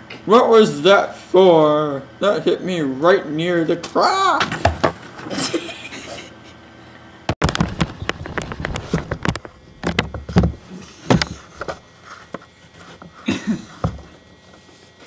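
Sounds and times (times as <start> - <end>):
objects knocking and bumping: 7.3 - 14.2.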